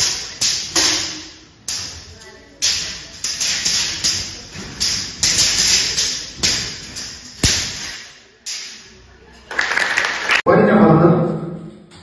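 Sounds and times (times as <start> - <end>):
swords clashing against shields: 0.0 - 9.0.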